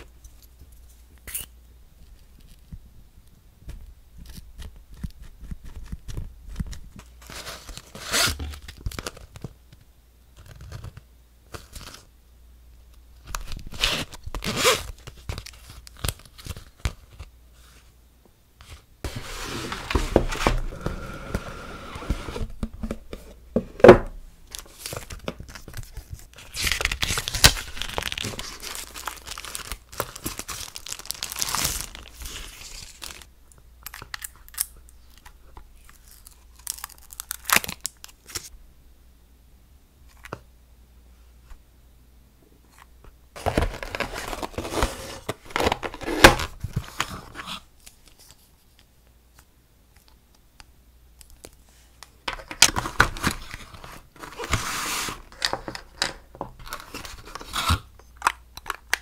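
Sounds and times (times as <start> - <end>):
plastic packaging crinkling: 24.4 - 35.2, 35.8 - 38.5
plastic film peeling: 24.5 - 33.3.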